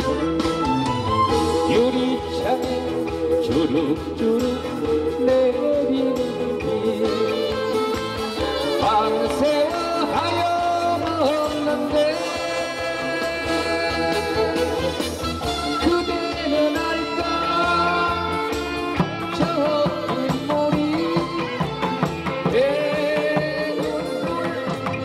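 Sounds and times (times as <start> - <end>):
steady musical accompaniment: 0.0 - 25.0.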